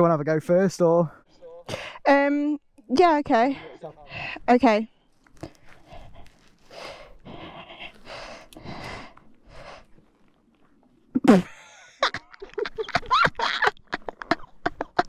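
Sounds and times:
person breathing hard: 3.6s - 4.5s, 5.4s - 10.0s.

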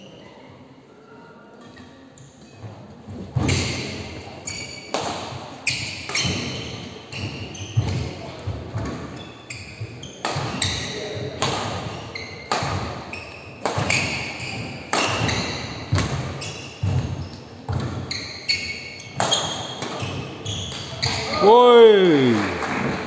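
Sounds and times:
shoe squeaks: 3.4s - 5.0s, 5.6s - 21.4s
rackets striking shuttlecock: 10.2s - 13.0s, 13.6s - 17.1s, 19.1s - 21.3s.

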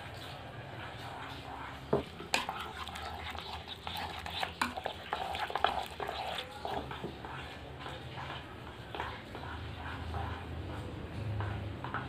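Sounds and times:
spoon stirring and scraping pot: 0.0s - 12.0s.

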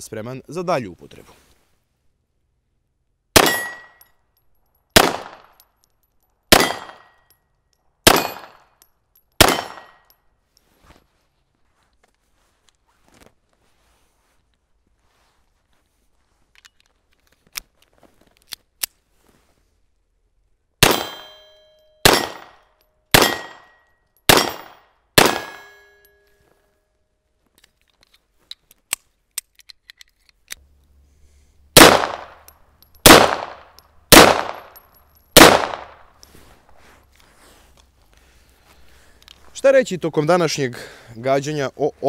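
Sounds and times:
pistol shots: 3.4s - 3.9s, 5.0s - 5.5s, 6.5s - 7.1s, 8.0s - 8.6s, 9.4s - 10.0s, 20.8s - 21.4s, 22.0s - 23.7s, 24.3s - 25.7s, 31.8s - 32.4s, 33.0s - 34.8s, 35.4s - 36.0s
metallic ring: 3.4s - 4.9s, 20.9s - 26.9s
gun handling clicks: 16.6s - 19.0s, 27.5s - 31.0s.

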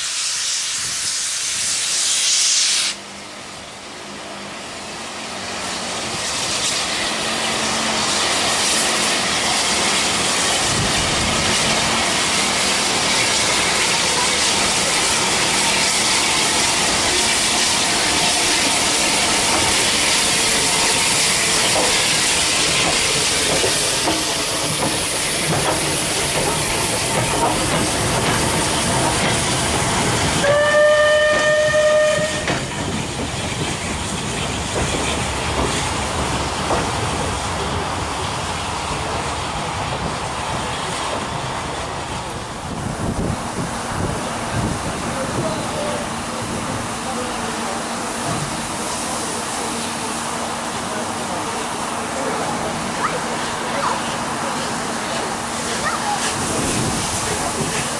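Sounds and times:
steam hissing: 0.0s - 57.9s
train wheels rumbling on rails: 0.0s - 57.9s
steam whistle blast: 30.4s - 32.6s.

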